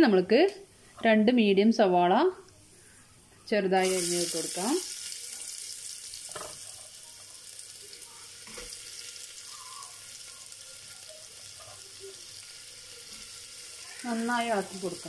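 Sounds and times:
onions sizzling in oil: 0:03.8 - 0:15.0.

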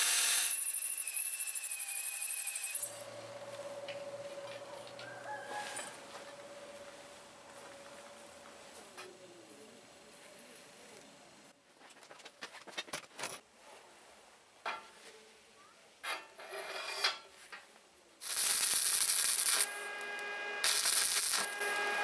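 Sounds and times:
steel clinks and scrapes: 0:05.5 - 0:06.0, 0:16.0 - 0:17.3
welding arc crackling and hissing: 0:18.2 - 0:22.0.

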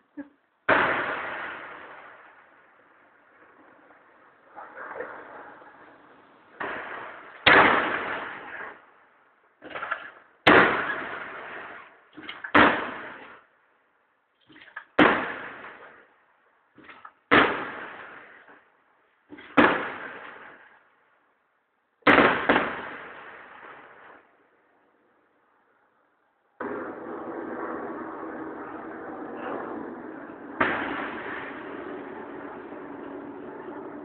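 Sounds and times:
firework shells bursting: 0:30.6 - 0:32.6.

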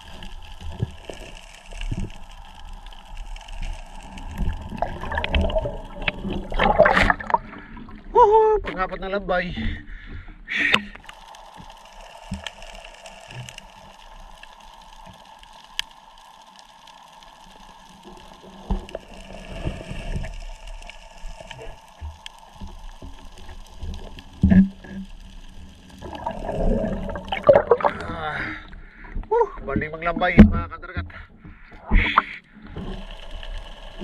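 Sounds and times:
knocks and scuffing on seabed: 0:00.0 - 0:08.0, 0:17.8 - 0:34.0
faint underwater hum: 0:00.0 - 0:34.0.

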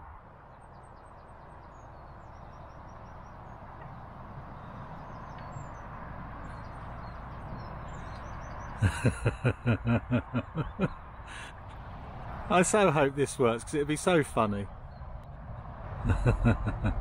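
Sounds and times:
outdoor background hiss: 0:00.0 - 0:14.7
faint birdsong: 0:00.0 - 0:17.0
man laughing: 0:08.8 - 0:11.6, 0:16.0 - 0:17.0.

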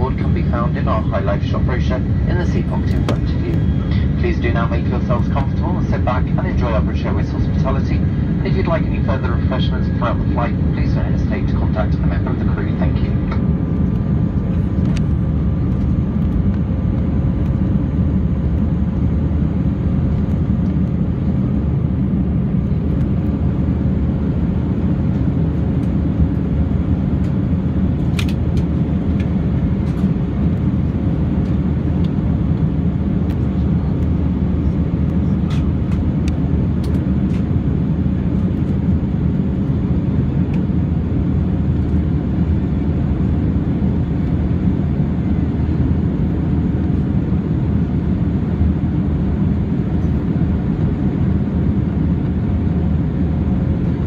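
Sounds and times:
aircraft cabin engine roar: 0:00.0 - 0:54.0.

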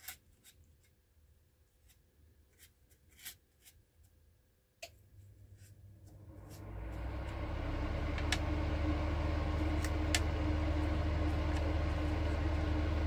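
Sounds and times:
low machine hum: 0:05.9 - 0:13.0.

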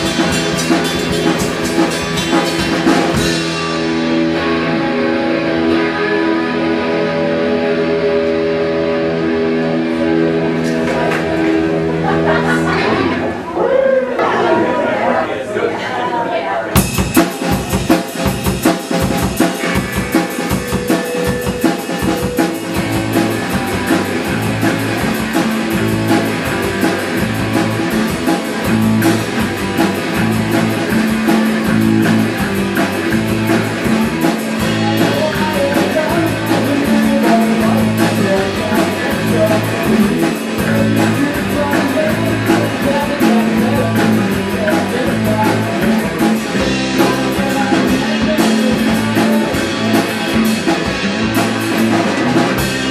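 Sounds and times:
drum kit steady beat: 0:00.0 - 0:04.5, 0:16.8 - 0:52.9
electric guitars through an amp: 0:00.0 - 0:14.4, 0:16.7 - 0:52.9.

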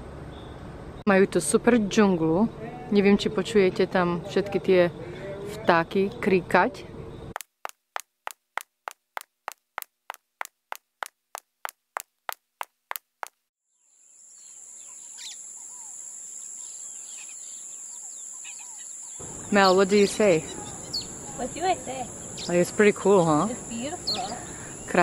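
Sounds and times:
birds chirping and calling: 0:14.4 - 0:25.0.

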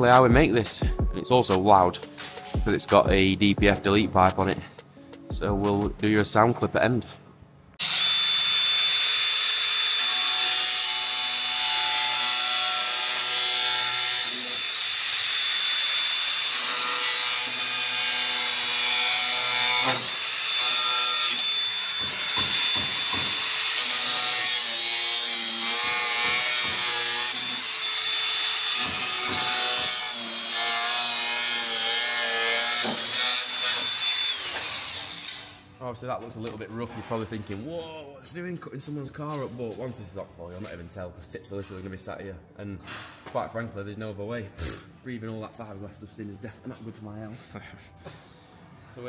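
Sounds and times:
power tool cutting plastic: 0:07.8 - 0:35.6.

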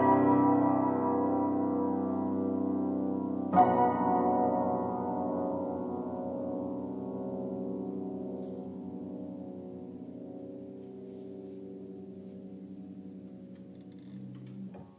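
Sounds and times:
piano chord ringing: 0:00.0 - 0:13.7.

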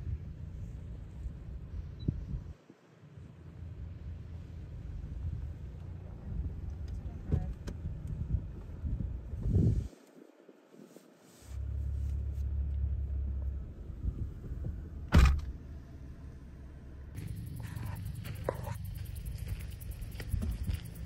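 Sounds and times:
low steady rumble: 0:00.0 - 0:09.9, 0:10.9 - 0:21.0
sharp loud thump: 0:15.1 - 0:15.5
crickets chirping: 0:17.2 - 0:21.0.

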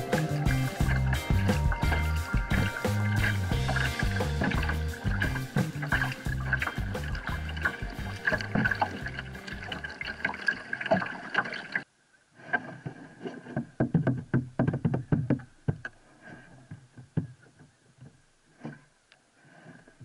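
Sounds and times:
paddle strokes: 0:00.0 - 0:11.8, 0:12.4 - 0:20.0
water splashing against a kayak: 0:00.0 - 0:14.6.

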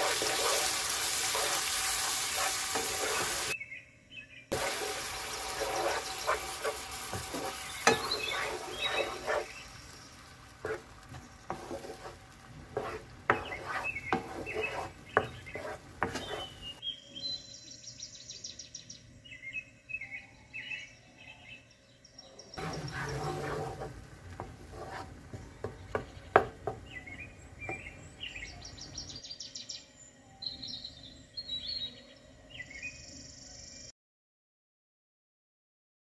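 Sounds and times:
utensils scraping frying pan: 0:00.0 - 0:03.6, 0:04.5 - 0:16.8, 0:22.6 - 0:28.0
bird chirps: 0:25.5 - 0:33.9.

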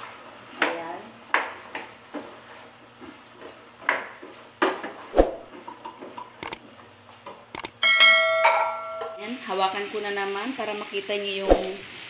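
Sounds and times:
wooden spatula scraping a pan: 0:01.5 - 0:03.7
sharp clicks: 0:07.6 - 0:07.8
ringing bell chime: 0:07.8 - 0:09.2.

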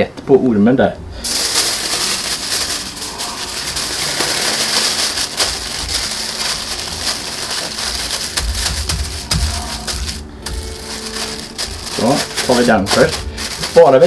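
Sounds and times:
aluminium foil crinkling: 0:01.2 - 0:14.0.

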